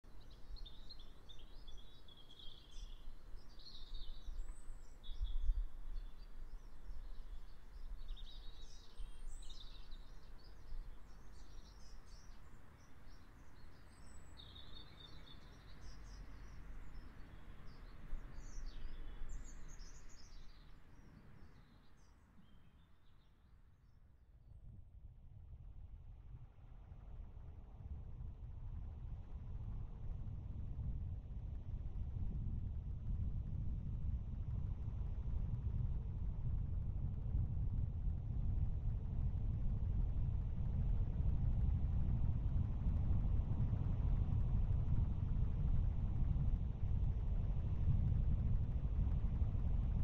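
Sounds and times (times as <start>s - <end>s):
small birds chirping: 0.1s - 23.3s
low steady rumble: 0.1s - 50.0s.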